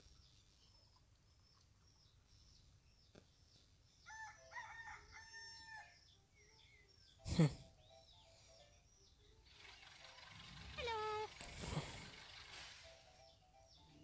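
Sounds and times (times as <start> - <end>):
small birds chirping: 0.0 - 14.0
rooster crowing: 4.1 - 6.0.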